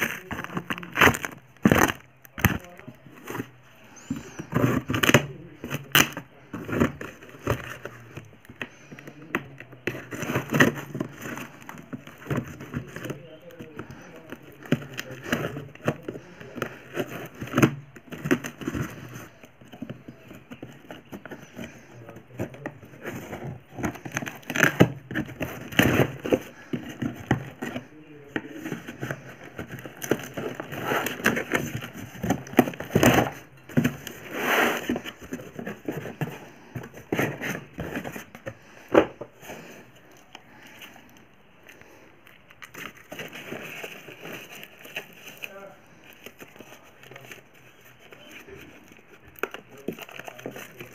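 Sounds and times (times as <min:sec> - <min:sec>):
packing tape crinkling: 0:00.0 - 0:38.4, 0:40.1 - 0:50.9
cardboard parcel torn open: 0:00.0 - 0:39.4.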